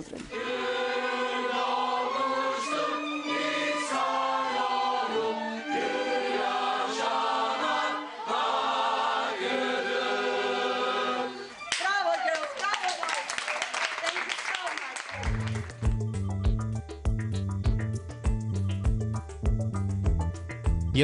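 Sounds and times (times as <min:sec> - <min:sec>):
mixed choir singing: 0:00.3 - 0:11.6
violins: 0:00.3 - 0:11.8.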